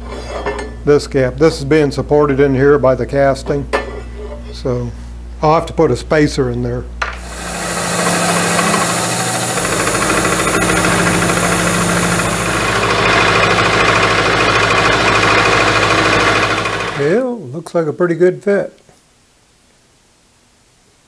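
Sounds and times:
harsh metal cutting noise: 0:07.2 - 0:17.2
milling machine hum: 0:07.2 - 0:17.2.

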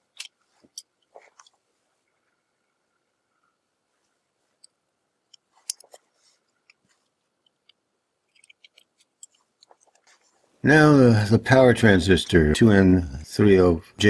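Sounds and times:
small clicks and taps: 0:04.6 - 0:10.1.

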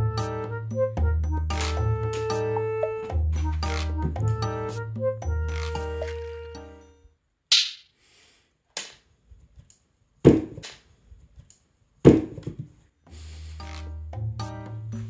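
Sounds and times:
light background music: 0:00.0 - 0:07.0, 0:13.1 - 0:15.0.

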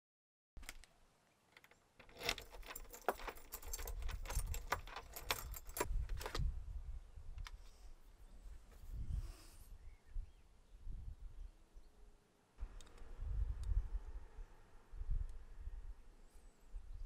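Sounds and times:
keys jangling in a lock: 0:01.6 - 0:06.4.

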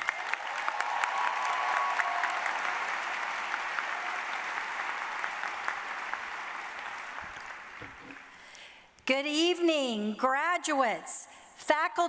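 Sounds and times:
audience applauding and cheering: 0:00.0 - 0:08.6.

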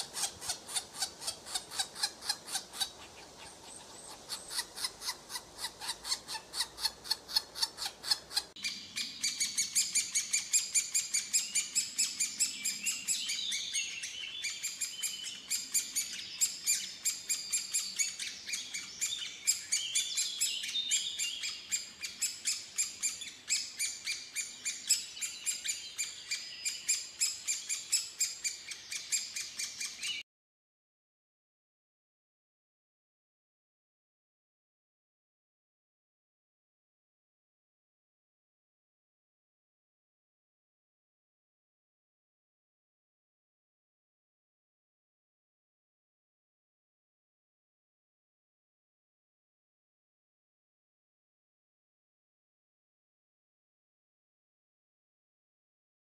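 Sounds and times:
woodpecker nestlings begging: 0:00.0 - 0:30.1.

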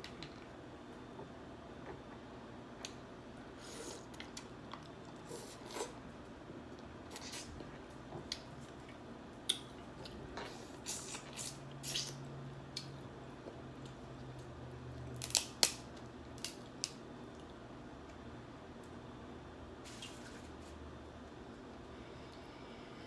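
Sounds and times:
crab shells cracking: 0:15.2 - 0:17.0.

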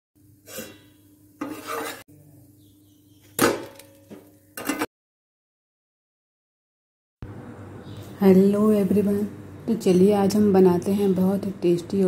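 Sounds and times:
spatula scraping frying pan: 0:00.4 - 0:02.1.

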